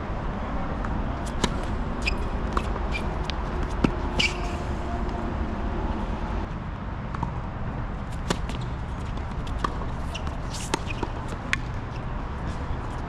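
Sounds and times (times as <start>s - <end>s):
steady low rumble: 0.0s - 10.1s.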